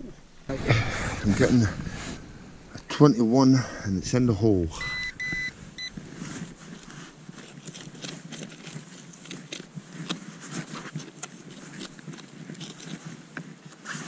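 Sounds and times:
hands scraping soil: 0.0 - 14.0
pinpointer high beeps: 4.8 - 6.0.

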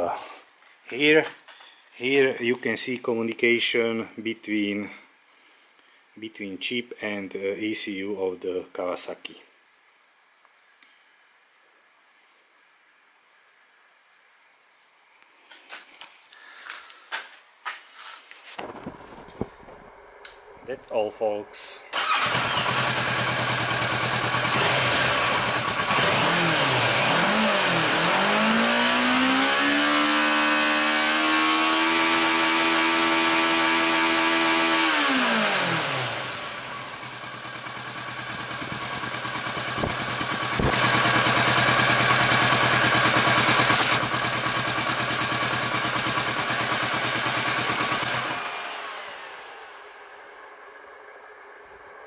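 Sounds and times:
motorcycle engine idling and revving: 22.0 - 52.0.

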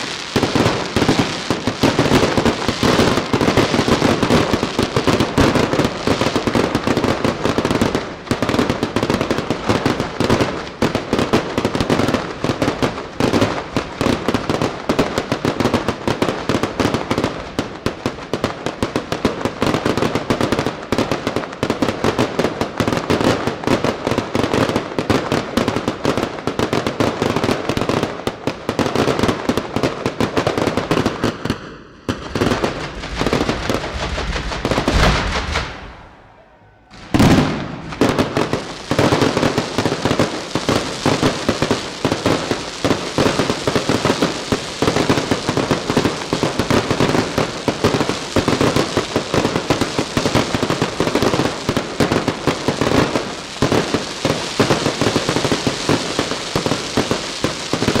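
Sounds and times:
fireworks shells bursting: 32.1 - 41.4.

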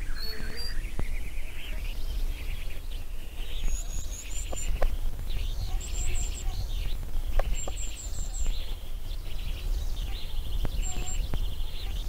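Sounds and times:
birds chirping and trilling: 0.0 - 12.0.

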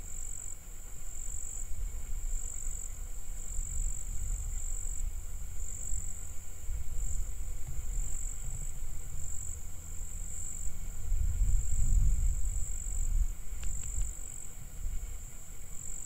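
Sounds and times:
high-pitched insect trill: 0.0 - 16.0
low rumble: 3.0 - 15.7.

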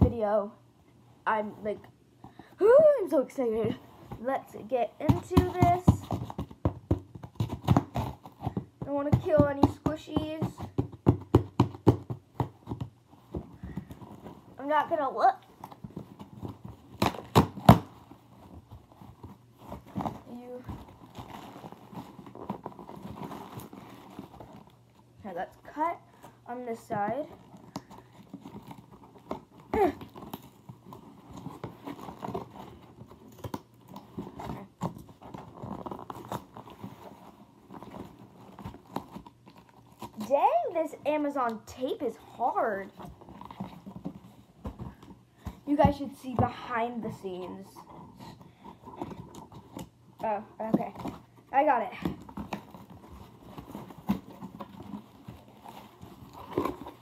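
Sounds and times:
cardboard rustling and scraping: 3.4 - 57.0
packaging crinkling: 52.2 - 57.0.

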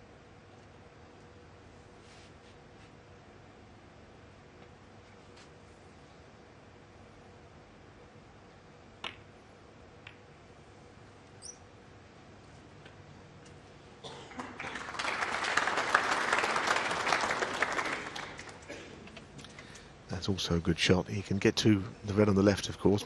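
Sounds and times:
balls clicking together: 9.0 - 9.4, 10.0 - 10.3
audience applause: 14.3 - 18.8.

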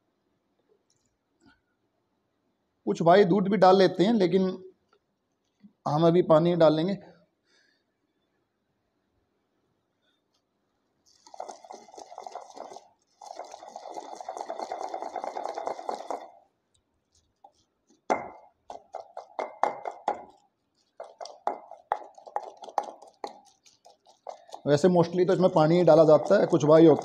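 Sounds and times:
pestle grinding in stone mortar: 11.2 - 16.4, 17.9 - 27.0.

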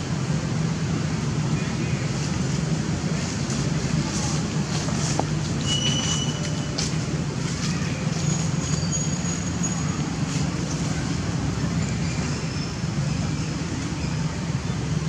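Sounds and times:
low rumble of background noise: 0.0 - 15.0.

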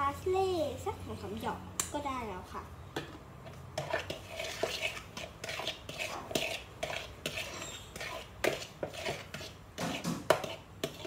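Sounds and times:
spoon clinking and scraping bowl: 3.5 - 11.0.

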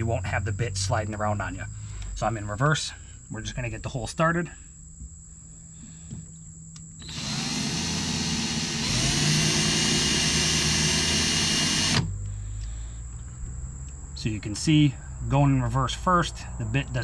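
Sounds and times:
power drill spinning: 7.0 - 12.1.

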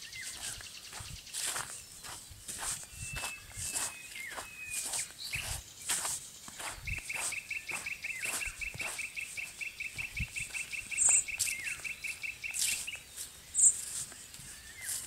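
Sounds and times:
footsteps on leaf litter: 0.0 - 15.0
high bird chirps: 0.0 - 15.0
bird trilling: 6.6 - 13.8.

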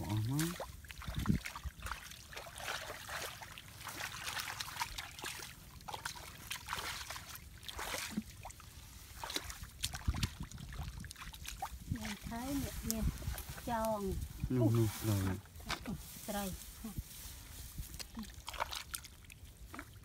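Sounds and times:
water trickling and sloshing: 0.0 - 20.0.

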